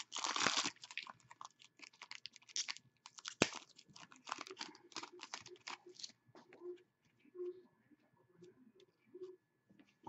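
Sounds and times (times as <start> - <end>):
foil wrapper tearing and crinkling: 0.0 - 6.1.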